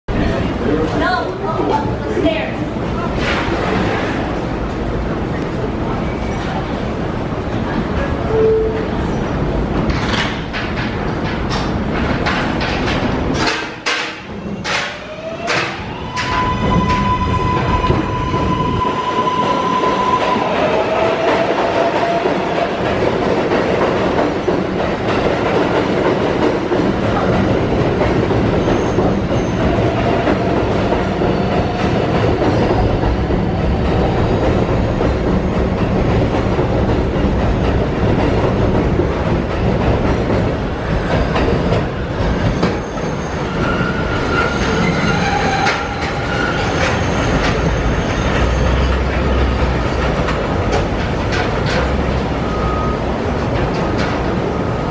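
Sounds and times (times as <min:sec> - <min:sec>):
subway train rumbling and clattering: 0:00.1 - 0:54.9
high wheel squeal: 0:28.6 - 0:30.2, 0:40.8 - 0:50.2.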